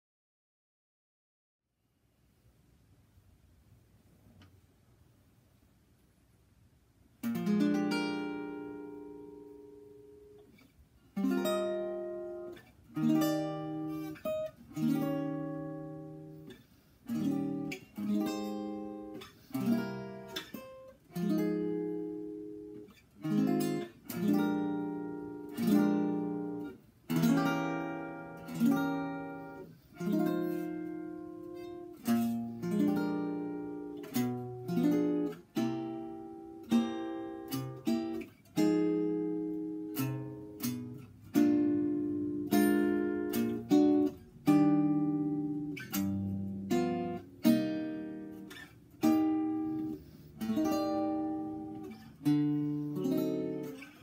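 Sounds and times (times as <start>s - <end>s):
acoustic guitar chords ringing: 7.2s - 54.0s.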